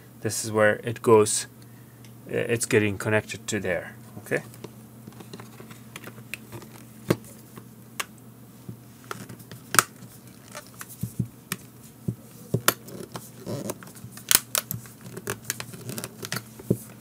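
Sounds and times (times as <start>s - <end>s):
plastic clips snapping shut: 13.0s - 16.4s.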